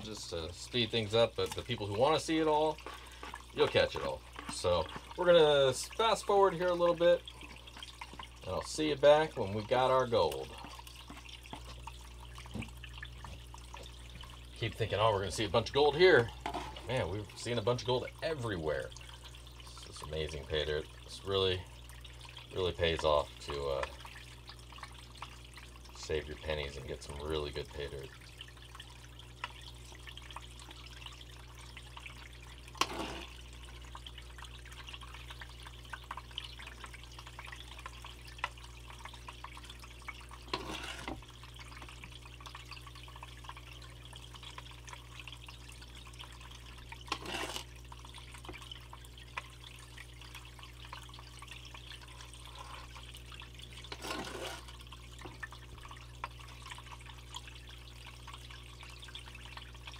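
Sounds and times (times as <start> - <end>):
water sloshing and trickling: 0.0 - 59.9
water splashes: 0.0 - 59.9.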